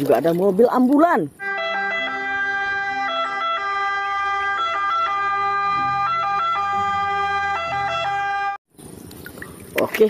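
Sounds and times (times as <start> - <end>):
ambulance electronic siren: 1.4 - 8.6.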